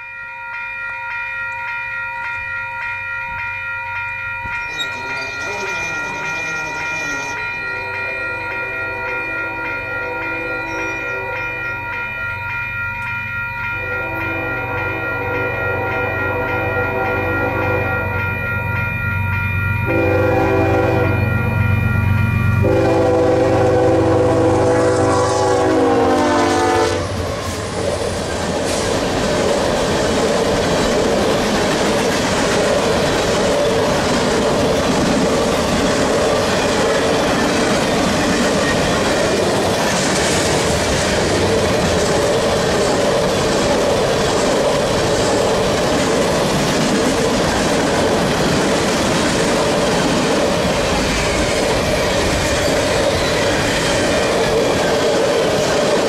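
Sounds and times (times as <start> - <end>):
wheels clacking on rails: 1.1 - 26.0, 27.0 - 56.0
locomotive air horn: 13.8 - 18.0, 19.9 - 21.3, 22.6 - 27.2.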